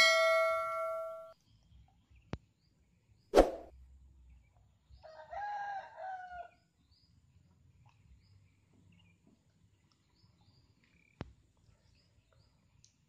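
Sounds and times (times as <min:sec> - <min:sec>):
rooster crowing: 0:05.0 - 0:06.5.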